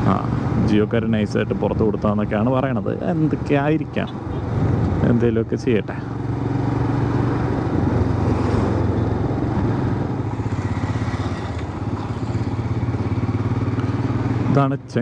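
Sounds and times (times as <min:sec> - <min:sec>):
road noise: 0:00.0 - 0:15.0
motorcycle engine running: 0:06.0 - 0:15.0.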